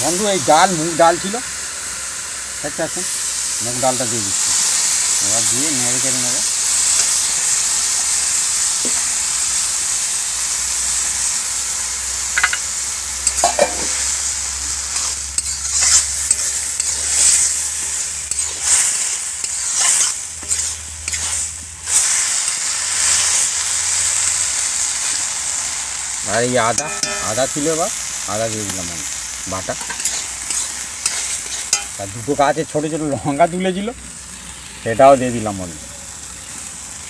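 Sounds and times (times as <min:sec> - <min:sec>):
food sizzling in hot oil: 0:00.0 - 0:37.0
metal spatula scraping: 0:13.2 - 0:22.4, 0:26.6 - 0:28.0, 0:29.7 - 0:32.0.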